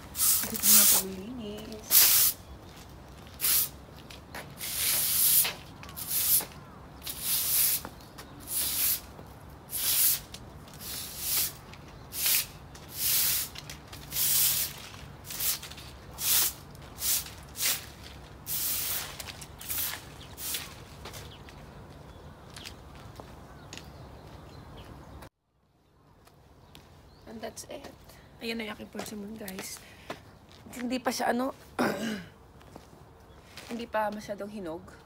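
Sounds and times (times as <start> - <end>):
broom sweeping concrete: 0.0 - 2.4, 3.3 - 3.8, 4.4 - 9.1, 9.7 - 21.0.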